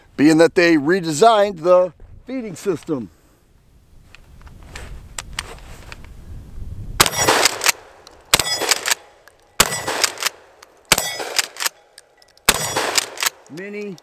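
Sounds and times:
shotgun shots: 7.0 - 11.8, 12.5 - 13.8
ringing clang of steel target: 8.4 - 10.1, 10.9 - 13.0.

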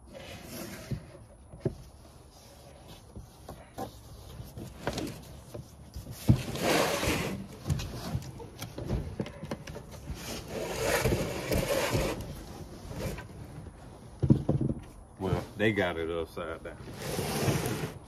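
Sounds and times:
cardboard scraping and rustling: 0.0 - 15.9, 16.7 - 18.0.

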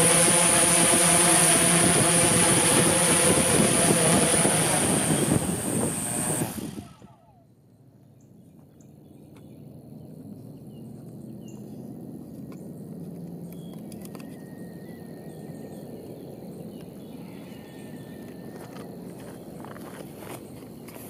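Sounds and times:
low steady rumble: 0.0 - 20.6
faint bird chirps: 13.4 - 19.7.

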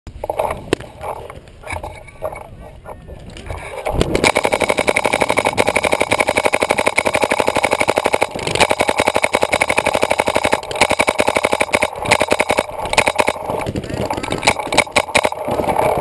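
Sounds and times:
paintball marker rapid firing: 3.6 - 16.0.

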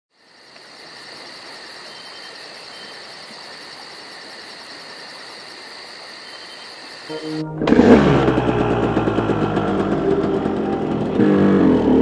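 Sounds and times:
insects chirping: 0.1 - 7.4.

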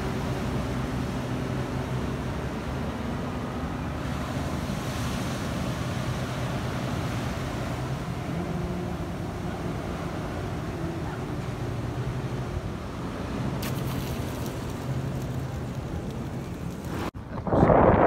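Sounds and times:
ocean surf breaking: 0.0 - 18.0
wind on microphone: 14.7 - 18.0.

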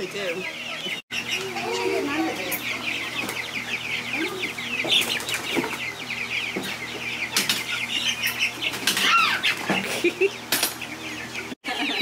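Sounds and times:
chicks peeping: 0.0 - 12.0
wings flapping: 4.9 - 5.8.

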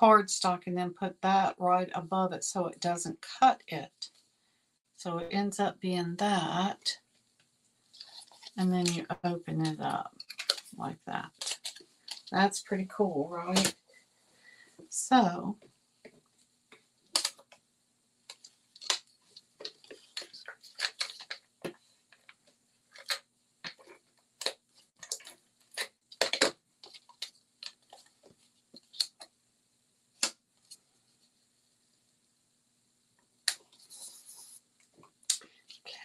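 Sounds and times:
faint steady hum: 0.0 - 36.0
paper rustling: 7.9 - 8.6, 18.4 - 21.5.

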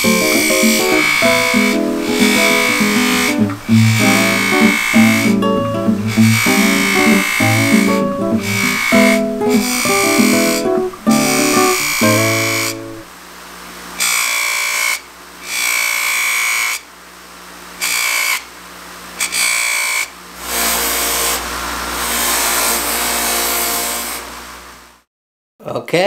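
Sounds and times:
metal grinding on grinder wheel: 0.0 - 5.5, 6.1 - 12.8
grinder motor humming: 0.0 - 13.0.

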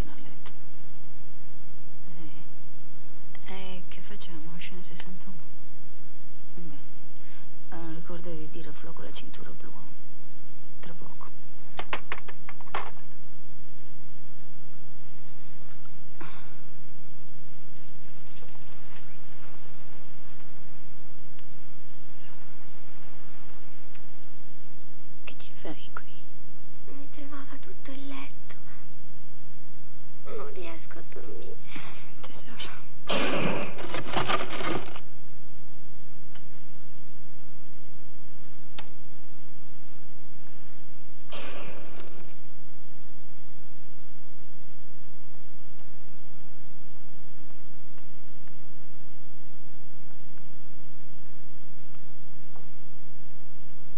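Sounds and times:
steady low hum: 0.0 - 53.9
soft rustle: 17.7 - 24.2, 33.7 - 35.1.

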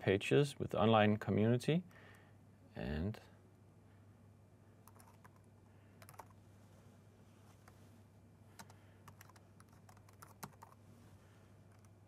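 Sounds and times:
steady low hum: 0.0 - 12.0
computer keyboard keystrokes: 4.9 - 6.4, 8.6 - 10.8.

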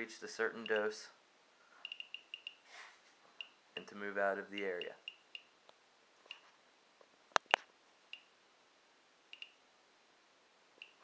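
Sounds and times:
radiation meter high chirps: 1.8 - 2.6
sharp clicks: 7.4 - 8.3.

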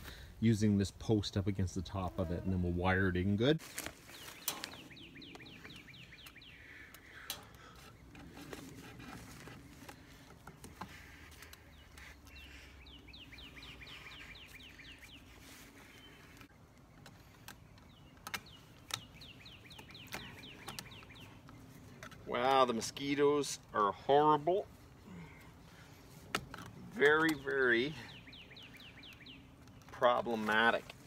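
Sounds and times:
songbird singing: 0.0 - 31.0
fence wire clicks: 4.4 - 4.9.

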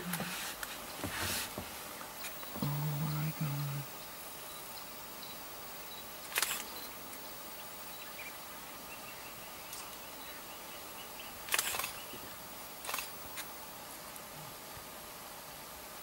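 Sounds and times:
faint steady hiss: 0.0 - 16.0
animals fighting in dry leaves: 6.1 - 14.6.

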